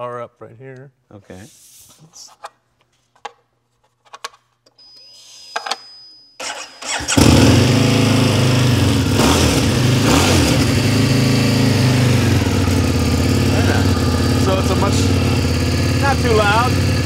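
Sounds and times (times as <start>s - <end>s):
starter motor cranking: 6.4s - 17.0s
motorcycle engine idling: 7.2s - 17.0s.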